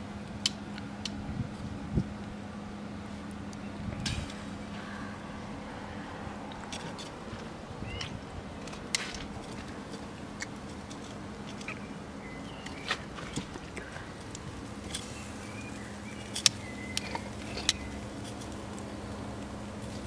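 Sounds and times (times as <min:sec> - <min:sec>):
faint steady hiss: 0:00.0 - 0:20.0
tongs clicking on grill grate: 0:08.0 - 0:20.0.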